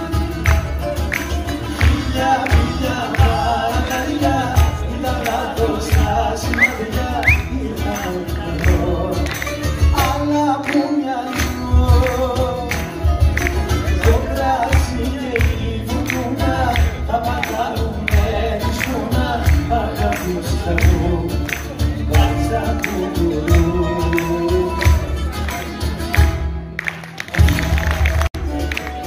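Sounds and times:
person singing: 0.0 - 25.7
acoustic guitars: 0.0 - 29.0
steady drum beat: 1.6 - 9.2, 11.5 - 25.3.

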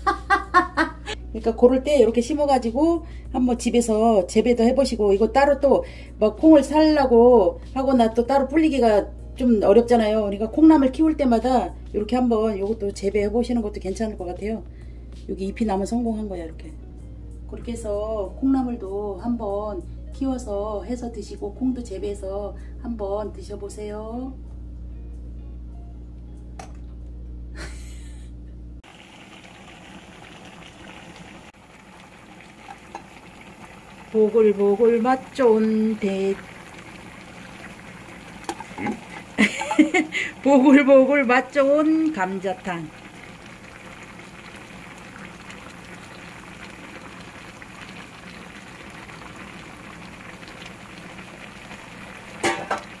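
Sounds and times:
stew bubbling at the boil: 28.8 - 53.0.

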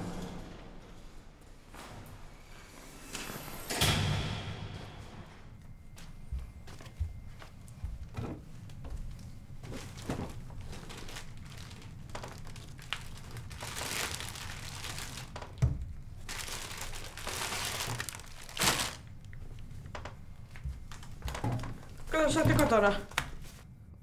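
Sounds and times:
crinkly packaging rustling: 8.8 - 23.6.

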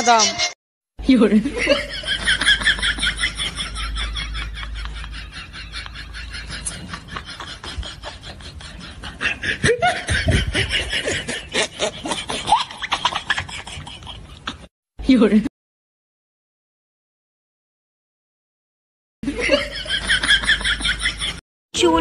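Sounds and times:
people talking: 0.0 - 1.9, 15.0 - 15.5, 21.8 - 22.0
people laughing: 1.2 - 14.7, 19.2 - 21.4.

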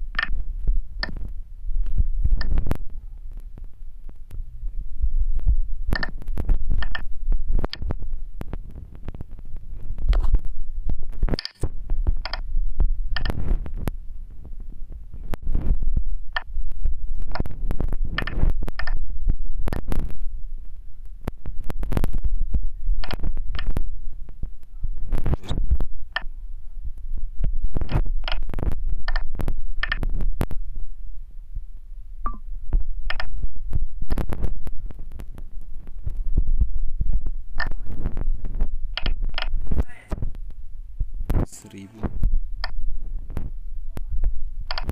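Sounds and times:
steady low rumble: 0.0 - 44.9
fingers tapping touchscreen: 0.1 - 4.4, 5.4 - 14.0, 15.2 - 16.6, 17.2 - 19.1, 23.0 - 24.5, 25.2 - 26.3, 27.8 - 30.6, 32.2 - 32.4, 33.0 - 33.5, 37.2 - 39.9, 42.6 - 42.8, 44.7 - 44.9.

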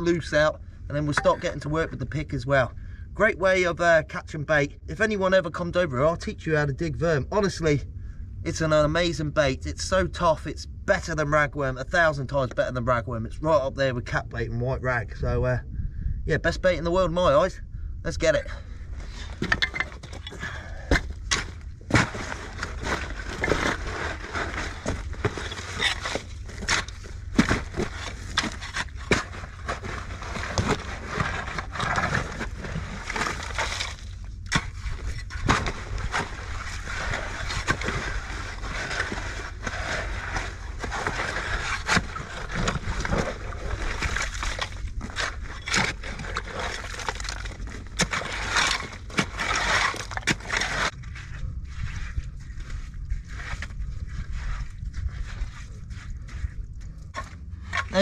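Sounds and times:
stones crunching and scraping: 18.9 - 58.0.

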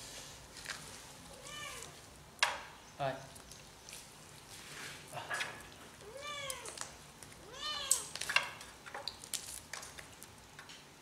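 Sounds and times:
cat meowing: 1.4 - 2.0, 6.0 - 6.8, 7.4 - 8.1
clicks and rustles of tearing meat: 5.4 - 10.8.

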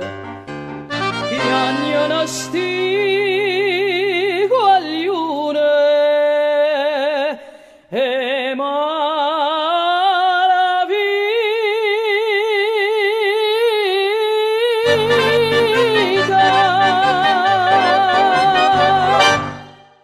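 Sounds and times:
accordion chords: 0.0 - 4.4, 14.9 - 20.0
woman singing with vibrato: 1.3 - 19.8.

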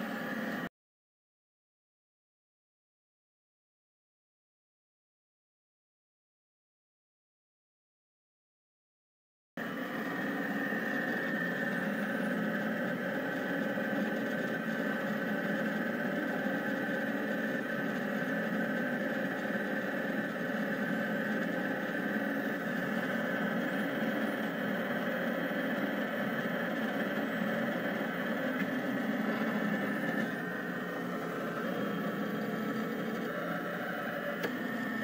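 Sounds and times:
three d printer motors whining: 0.0 - 0.7, 9.6 - 35.0.

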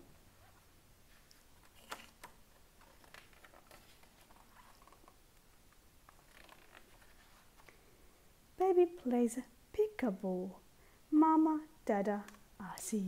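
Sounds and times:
paper pages turning: 1.1 - 7.8.

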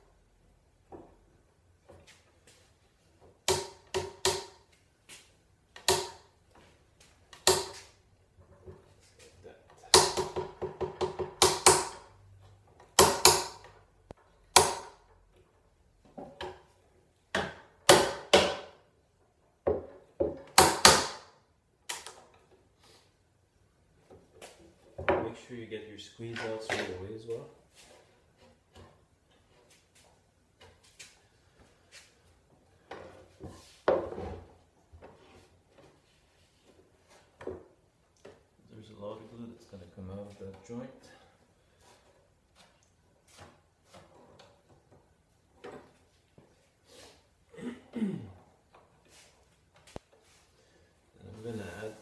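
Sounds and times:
wooden knocks: 10.0 - 11.9.

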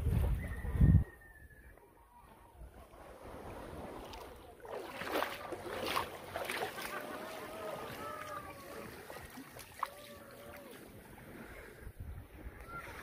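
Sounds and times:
sea water sloshing and splashing: 2.7 - 13.0.

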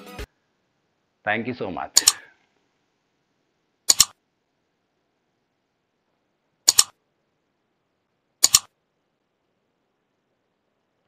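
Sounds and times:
mouse double clicks: 3.9 - 4.2, 6.7 - 7.0, 8.4 - 8.7.

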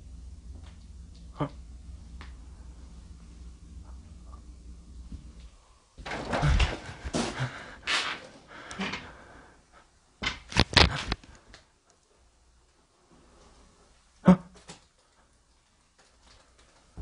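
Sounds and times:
shuffling and rustling: 5.0 - 9.2.

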